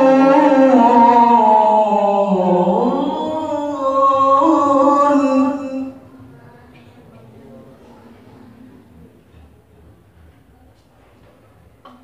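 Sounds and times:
man reciting melodically: 0:00.0 - 0:06.0.

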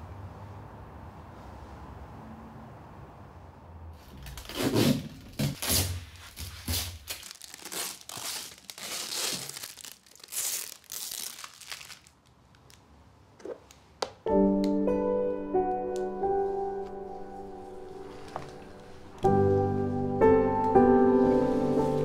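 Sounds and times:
packing tape ripping: 0:04.2 - 0:12.8
piano music: 0:14.2 - 0:22.0.

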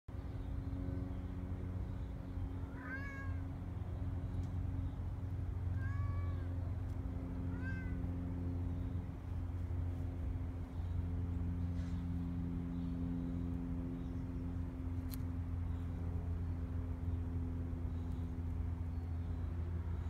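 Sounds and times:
low hum: 0:00.1 - 0:20.0
kitten meowing: 0:02.6 - 0:03.4, 0:05.7 - 0:06.5, 0:07.5 - 0:08.0.

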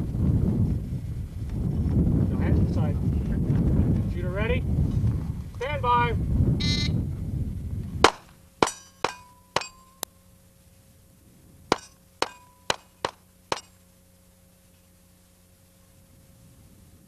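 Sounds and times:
pistol shots: 0:08.0 - 0:09.9.

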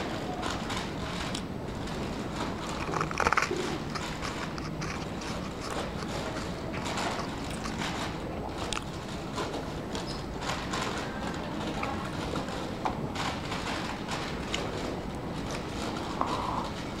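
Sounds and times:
room noise: 0:00.0 - 0:17.0
paper liner crinkling: 0:02.6 - 0:08.2.

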